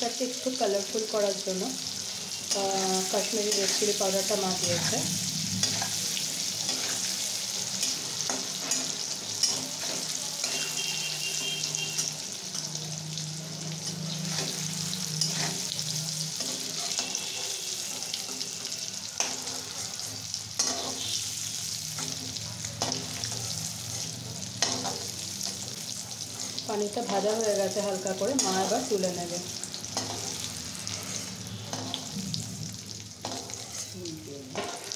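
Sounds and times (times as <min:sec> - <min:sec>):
paneer sizzling in oil: 0:00.0 - 0:34.9
steel spatula scraping pan: 0:06.6 - 0:12.2, 0:16.4 - 0:21.4, 0:30.0 - 0:32.1, 0:33.2 - 0:34.0.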